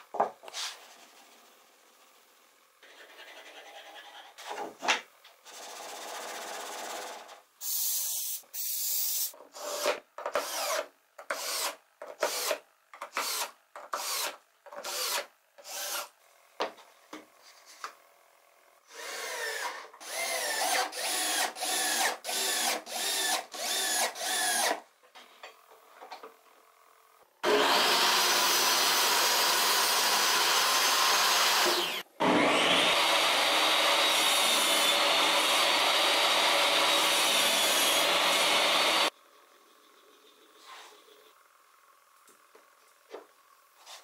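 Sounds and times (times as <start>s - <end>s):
cordless drill whining: 18.9s - 24.8s, 27.4s - 39.1s.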